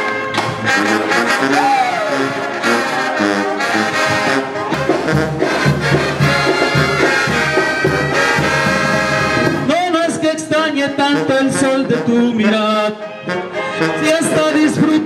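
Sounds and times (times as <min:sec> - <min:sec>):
trumpets and saxophones chords: 0:00.0 - 0:15.0
sousaphone and drums beat: 0:03.9 - 0:09.9.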